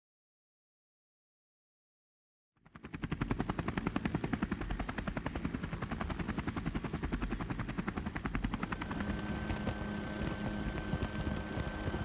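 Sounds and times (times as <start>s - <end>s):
helicopter rotor chopping: 2.6s - 12.0s.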